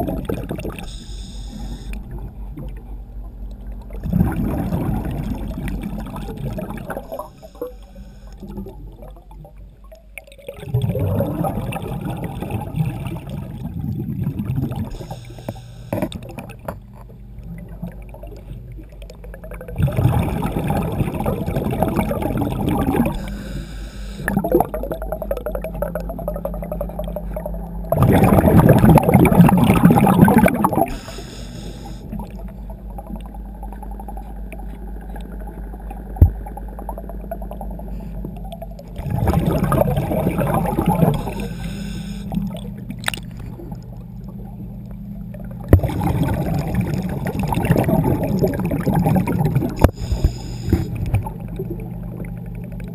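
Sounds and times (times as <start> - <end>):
exhaled bubbles rushing: 0.0 - 52.9
low hum: 0.0 - 52.9
diver inhaling through regulator: 0.8 - 2.0, 6.9 - 8.6, 14.9 - 16.1, 22.8 - 24.5, 30.0 - 32.2, 39.4 - 42.5, 49.8 - 51.1.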